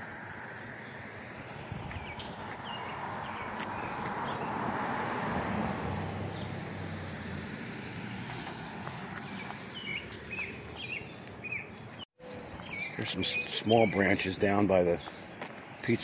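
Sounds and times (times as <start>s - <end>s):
car passing: 0.0s - 11.1s.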